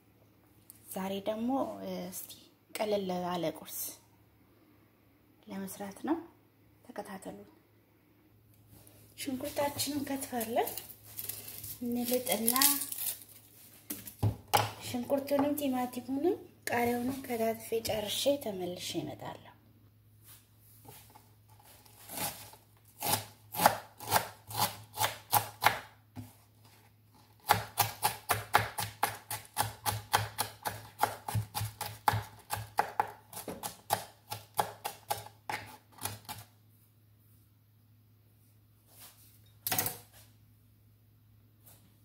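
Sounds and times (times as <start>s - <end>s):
knife chopping on wooden board: 27.4s - 36.4s.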